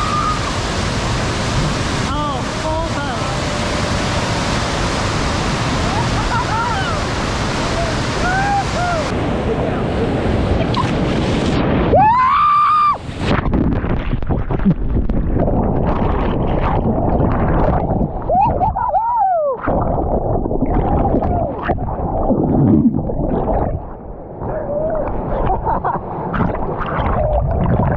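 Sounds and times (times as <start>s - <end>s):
whitewater churning against boat: 0.0s - 27.9s
muffled bubbling underwater gurgle: 13.5s - 18.9s, 19.6s - 27.9s.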